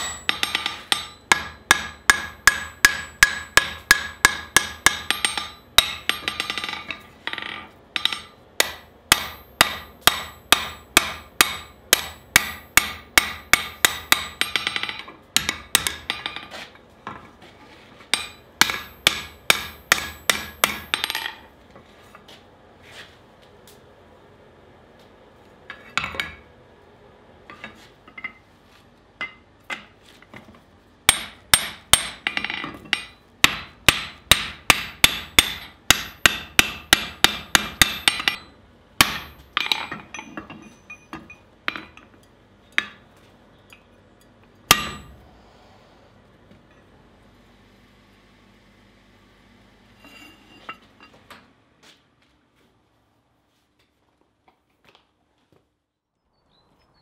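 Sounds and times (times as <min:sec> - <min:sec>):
hammer ringing on steel and anvil: 0:00.0 - 0:16.3, 0:18.1 - 0:21.4, 0:31.1 - 0:41.8, 0:44.7 - 0:45.2.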